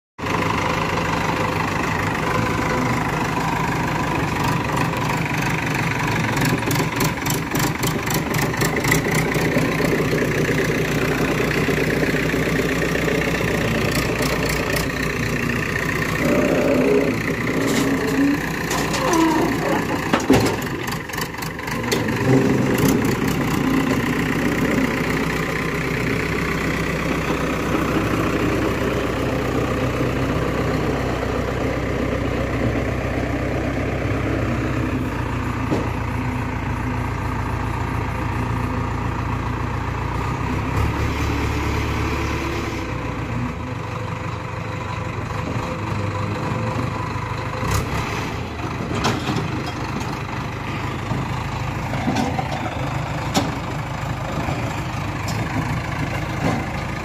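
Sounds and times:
diesel engine revving under load: 0.2s - 57.0s.

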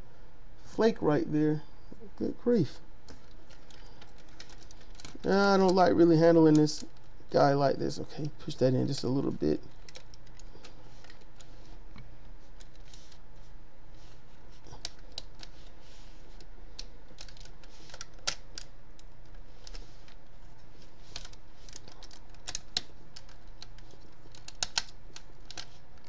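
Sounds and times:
plastic toy parts clicking: 3.2s - 5.8s, 8.9s - 11.5s, 16.8s - 19.8s, 21.1s - 26.0s.

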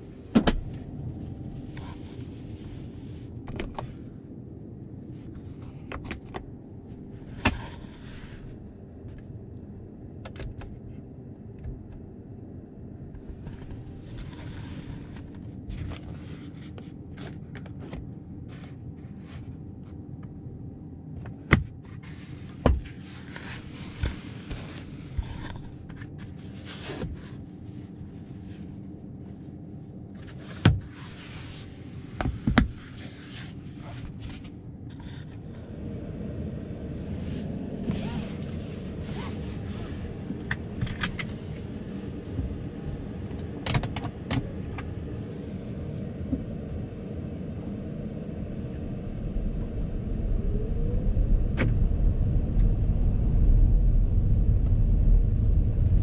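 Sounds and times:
road and tyre rumble: 13.1s - 18.7s, 30.2s - 56.0s.

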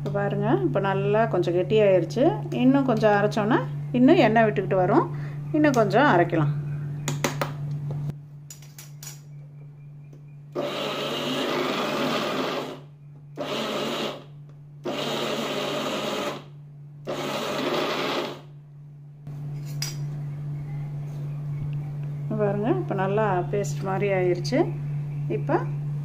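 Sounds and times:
mixer grinder grinding peanuts: 10.6s - 12.8s, 13.4s - 16.5s, 17.1s - 18.5s.

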